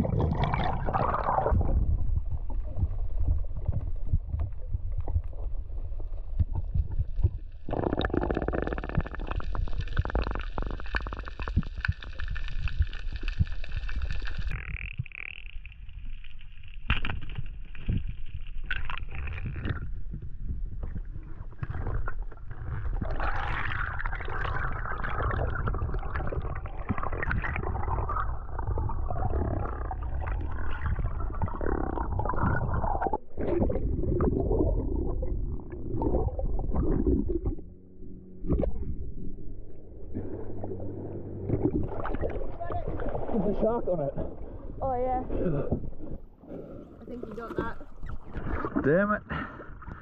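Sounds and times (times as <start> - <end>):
underwater gurgling and crackling: 0.0 - 50.0
underwater rumble of moving water: 0.0 - 50.0.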